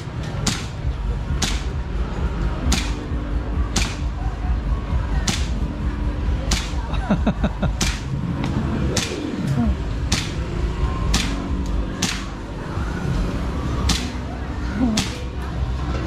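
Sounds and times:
low background din: 0:00.0 - 0:16.0
bb pistol shots: 0:06.5 - 0:06.8, 0:12.0 - 0:12.4.

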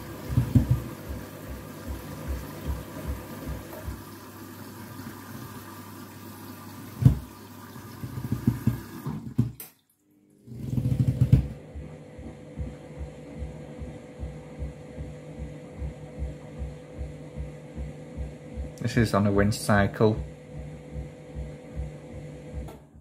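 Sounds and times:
heavy splashes and thumps: 0:00.0 - 0:04.0, 0:07.0 - 0:07.3
steady machine hum: 0:00.0 - 0:04.9, 0:10.6 - 0:23.0
washing machine drum sloshing water: 0:00.0 - 0:11.7.

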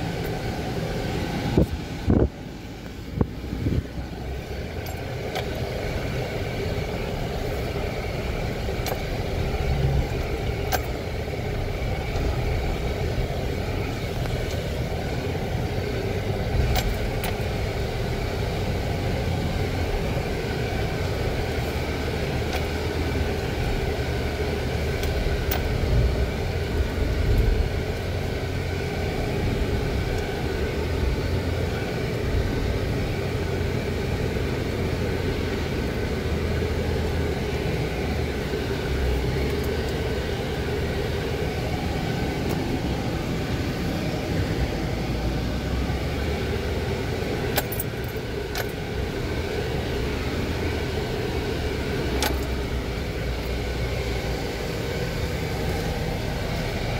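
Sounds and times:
vehicle engine running under load: 0:00.0 - 0:56.9
sharp clicks and rattles: 0:47.2 - 0:48.9, 0:52.1 - 0:52.7.

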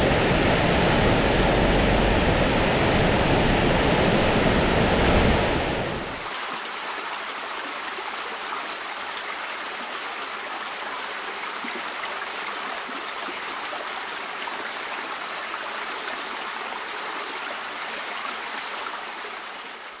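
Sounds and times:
low rumble: 0:00.0 - 0:06.1
water rushing down a channel: 0:05.4 - 0:20.0.

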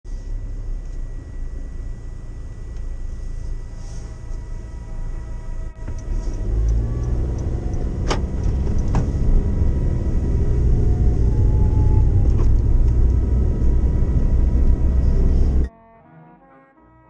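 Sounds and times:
road and engine rumble in a van: 0:00.1 - 0:15.7.

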